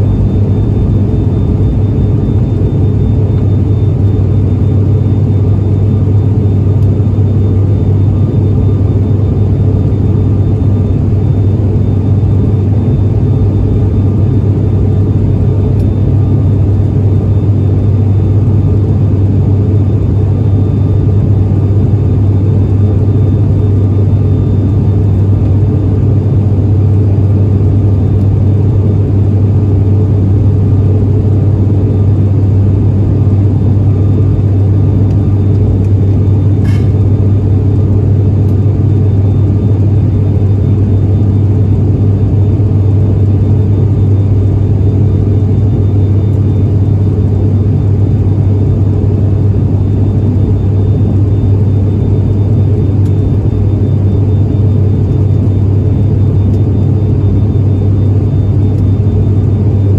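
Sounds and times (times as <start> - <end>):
turboprop engine drone: 0.0 - 59.9.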